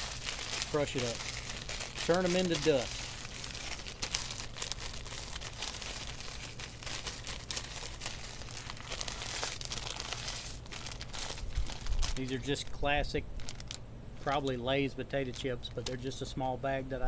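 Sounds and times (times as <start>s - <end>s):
chips crunching: 0.0s - 12.4s
chip bag crinkling: 0.0s - 14.6s.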